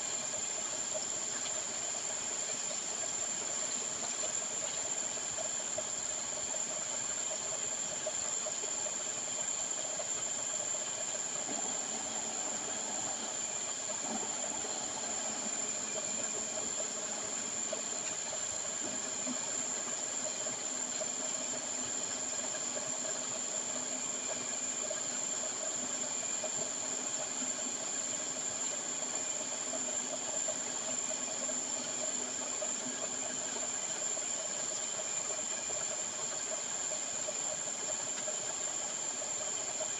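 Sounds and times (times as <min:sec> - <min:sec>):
machinery hiss: 0:08.0 - 0:23.0
steady hum: 0:08.9 - 0:22.9.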